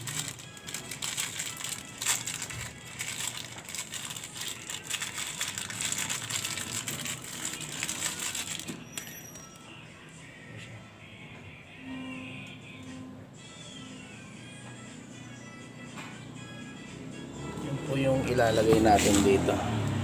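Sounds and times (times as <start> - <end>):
plastic wrapper crinkling: 0.0 - 8.8, 18.7 - 19.4.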